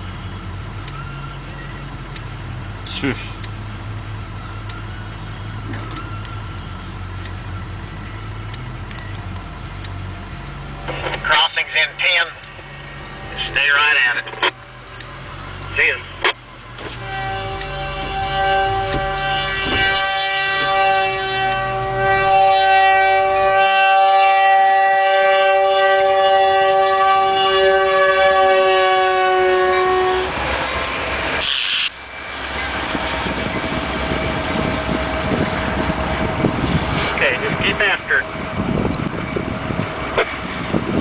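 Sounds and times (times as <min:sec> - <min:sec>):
low rumble: 0:00.0 - 0:23.5, 0:29.5 - 0:41.0
low engine hum: 0:00.0 - 0:23.6, 0:26.1 - 0:41.0
locomotive air horn: 0:16.8 - 0:31.9, 0:32.7 - 0:39.2.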